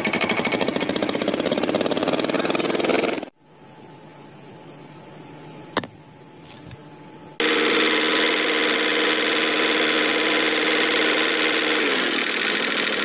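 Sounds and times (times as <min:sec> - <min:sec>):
small electric motor whirring: 0:07.4 - 0:13.0.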